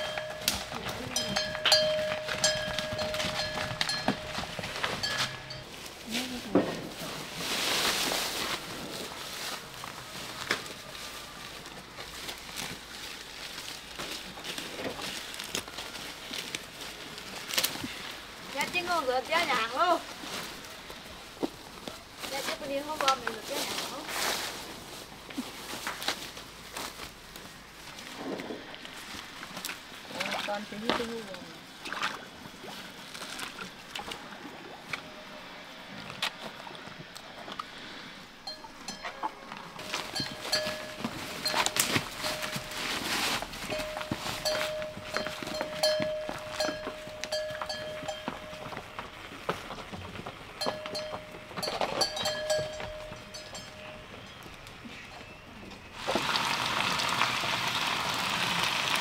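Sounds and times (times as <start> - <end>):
buffalo chewing rustling foliage: 0.0 - 59.0
hooves sloshing in water: 29.2 - 37.9.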